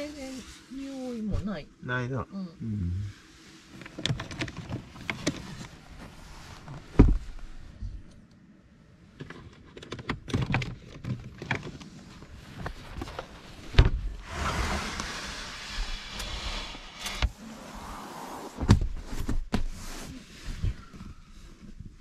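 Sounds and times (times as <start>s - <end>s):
steady hiss: 0.0s - 3.9s
heavy thumps: 6.7s - 7.4s.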